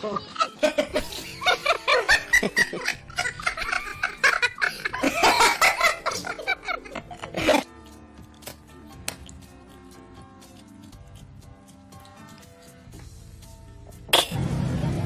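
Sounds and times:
person laughing hard: 0.0 - 7.7.

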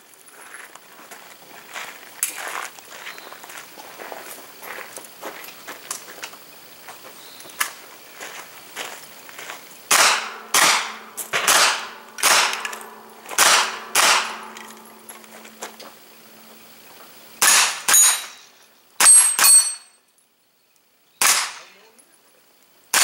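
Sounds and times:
carbine gunshots: 9.9 - 15.6, 17.4 - 19.8, 21.2 - 21.8
steel targets ringing: 9.9 - 15.6, 17.4 - 20.0.

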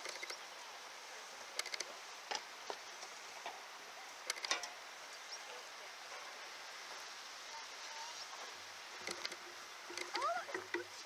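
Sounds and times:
stream rushing: 0.0 - 11.0
sharp clicks and knocks: 4.3 - 4.8, 9.0 - 10.9.

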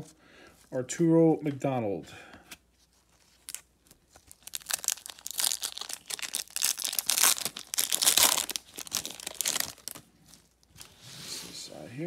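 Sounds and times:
plastic wrapper crinkling and tearing: 2.9 - 10.8.

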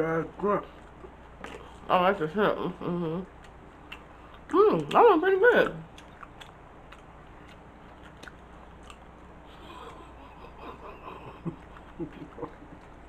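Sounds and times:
person chewing: 0.7 - 1.9, 3.2 - 5.0, 5.7 - 13.0.

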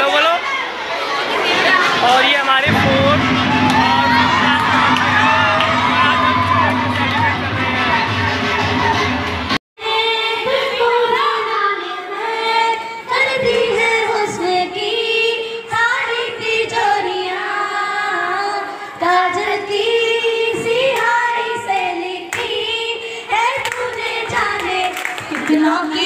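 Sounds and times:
children's crowd noise: 0.0 - 26.0
girl singing into microphone: 9.8 - 26.0.

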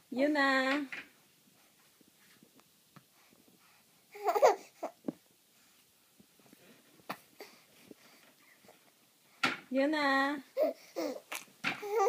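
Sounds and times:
baby babbling: 4.1 - 5.0, 10.6 - 12.0.

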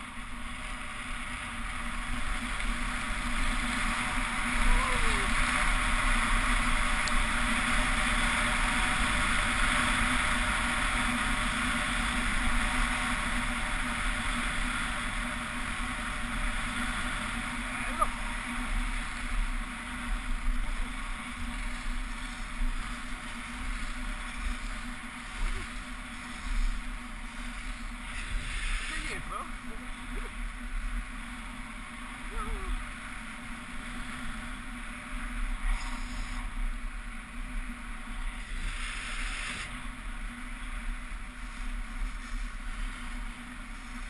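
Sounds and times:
skis hissing on snow: 20.8 - 30.3, 35.5 - 36.6, 38.2 - 40.0, 41.2 - 44.0.

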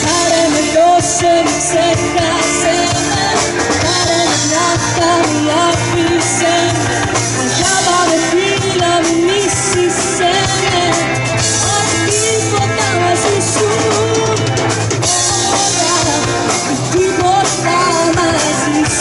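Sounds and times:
bass guitar: 0.0 - 19.0
drum kit: 0.0 - 19.0
electric guitars: 0.0 - 19.0
keyboard: 0.0 - 19.0
woman singing: 0.0 - 19.0.

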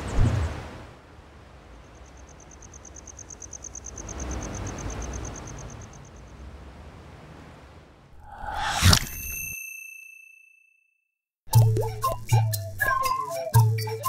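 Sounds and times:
low wind-like background: 0.0 - 9.5
cricket trilling: 1.9 - 6.2.

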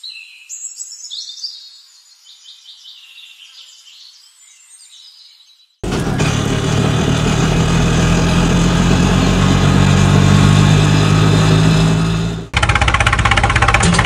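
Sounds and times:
engine chugging in fast pulses: 5.8 - 14.0
small engine running: 5.8 - 14.0.

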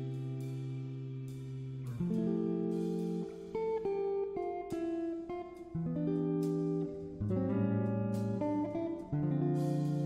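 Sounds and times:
plucked guitar melody: 0.0 - 10.0.

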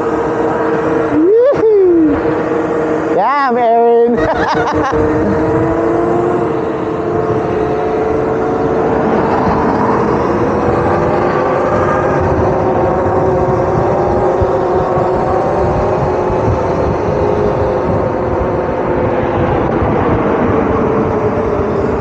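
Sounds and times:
electric motor whine: 0.0 - 22.0
wind rush: 0.0 - 22.0.

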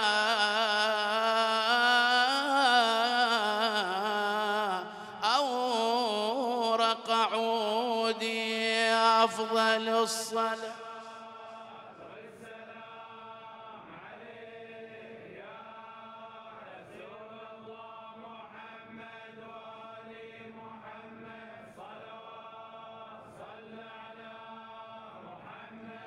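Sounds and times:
men chanting: 0.0 - 13.2.

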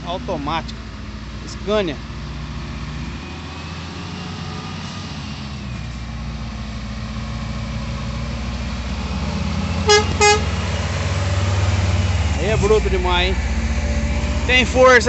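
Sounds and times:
diesel truck engine under load: 0.0 - 15.0
truck horn toots: 9.8 - 10.6.

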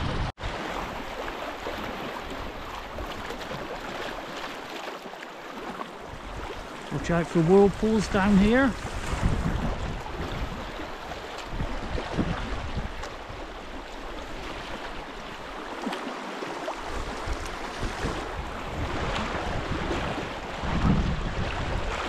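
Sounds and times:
wind on microphone: 0.0 - 1.2, 6.0 - 15.6, 16.7 - 22.0
paddle splash: 0.0 - 22.0
river water rushing: 0.0 - 22.0.

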